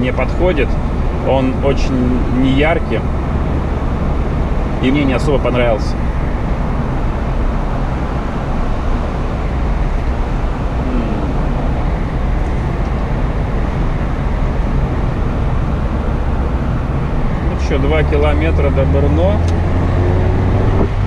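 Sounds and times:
car engine: 0.0 - 21.0
wind noise: 20.0 - 21.0.

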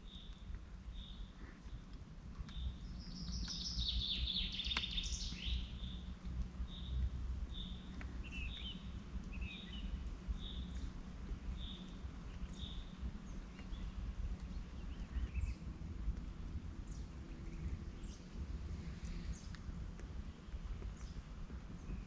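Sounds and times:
low rumble: 0.0 - 22.0
bird chirps: 2.4 - 6.0, 6.7 - 10.9.

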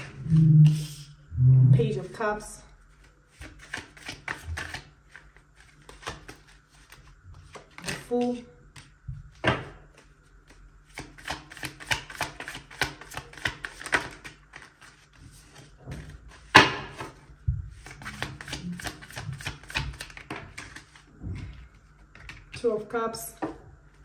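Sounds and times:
cards riffling: 3.0 - 8.0
cards slapping: 3.0 - 8.1, 10.9 - 17.2, 17.8 - 21.0, 22.1 - 22.6.

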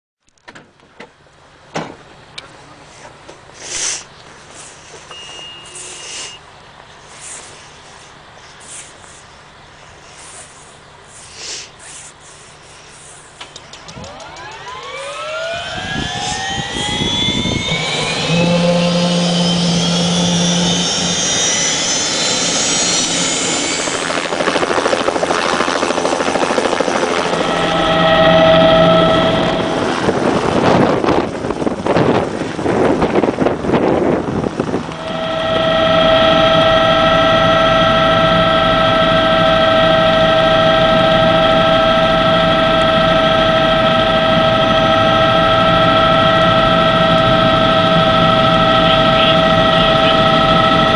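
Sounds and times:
helicopter turbine whine: 2.2 - 50.9
helicopter rotor beating: 7.4 - 50.9
gusty wind noise: 13.8 - 50.9.

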